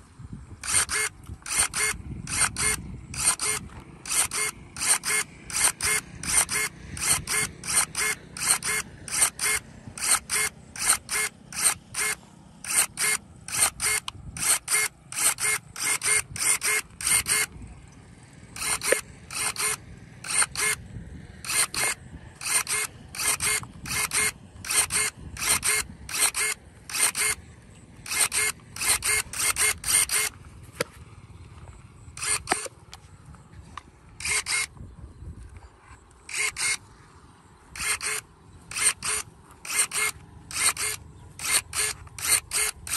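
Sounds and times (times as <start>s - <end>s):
electric pruning shears snapping: 0.6s - 17.6s, 18.5s - 20.8s, 21.4s - 27.4s, 28.0s - 31.0s, 32.2s - 33.0s, 34.2s - 34.8s, 36.2s - 36.8s, 37.8s - 42.9s.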